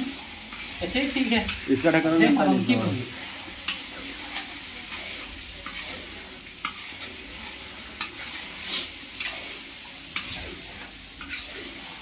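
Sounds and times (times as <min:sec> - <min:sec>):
chicken sizzling in a pan: 0:00.0 - 0:12.0
spatula scraping and knocking pan: 0:03.1 - 0:12.0.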